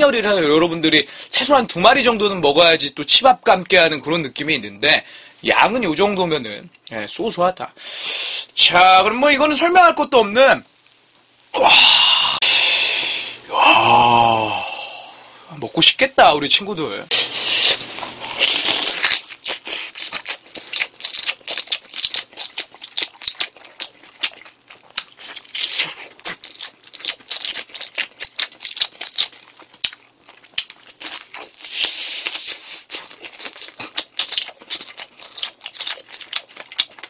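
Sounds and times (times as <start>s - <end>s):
tearing and sucking noises: 17.1s - 22.8s, 25.0s - 26.4s, 31.3s - 36.0s
chewing with wet clicks and smacks: 19.0s - 37.0s.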